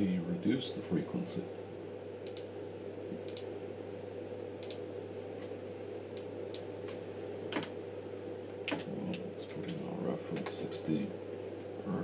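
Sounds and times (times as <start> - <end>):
low electrical hum: 0.0 - 12.0
controls clicking: 2.2 - 2.5, 3.1 - 3.5, 4.6 - 4.8.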